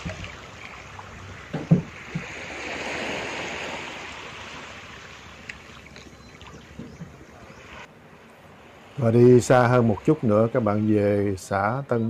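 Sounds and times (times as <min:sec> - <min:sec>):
waves washing over rocks: 0:00.0 - 0:01.2, 0:01.9 - 0:05.9.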